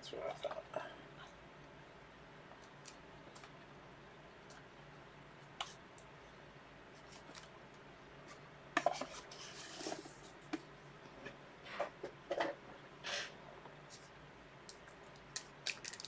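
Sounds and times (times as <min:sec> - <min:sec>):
packaging rustle: 0:15.1 - 0:16.0.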